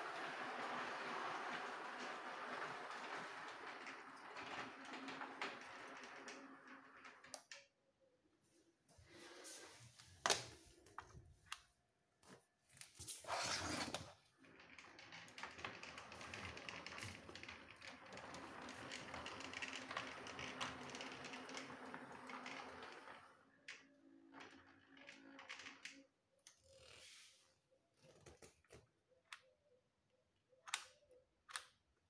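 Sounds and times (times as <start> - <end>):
toy train rattling on track: 14.6 - 23.1.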